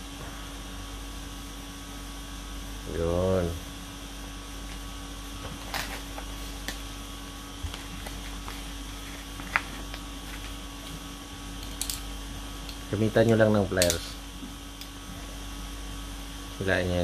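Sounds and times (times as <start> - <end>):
steady electrical hum: 0.0 - 17.0.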